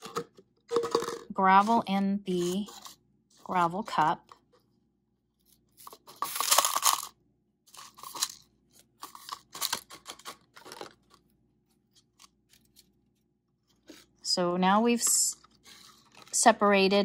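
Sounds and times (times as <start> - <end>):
gravel rattling into plastic cup: 0.7 - 1.3.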